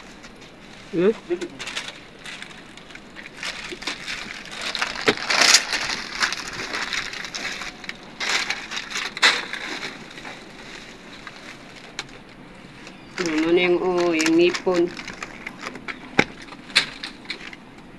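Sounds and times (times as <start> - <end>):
concrete and tile crunching: 1.5 - 12.3.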